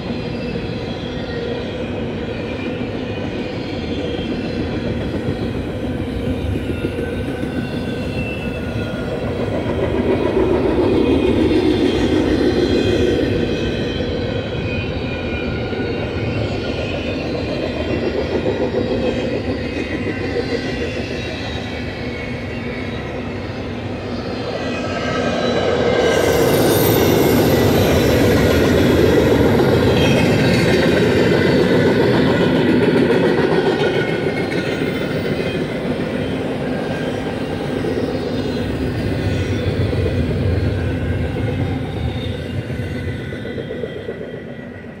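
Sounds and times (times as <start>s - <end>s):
train wheels rumbling on rail: 0.0s - 45.0s
high wheel squealing: 24.3s - 44.5s.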